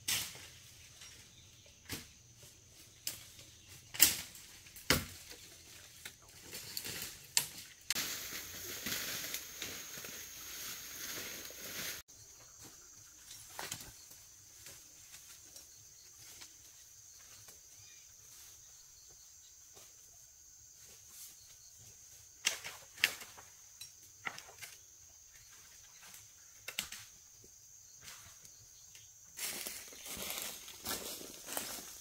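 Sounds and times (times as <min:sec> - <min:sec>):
dry vegetation rustling and crackling: 0:00.0 - 0:12.0, 0:29.3 - 0:32.0.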